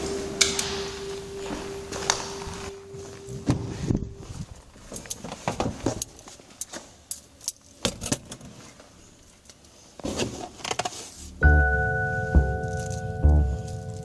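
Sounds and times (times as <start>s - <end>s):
music: 0.0s - 4.4s, 11.4s - 14.0s.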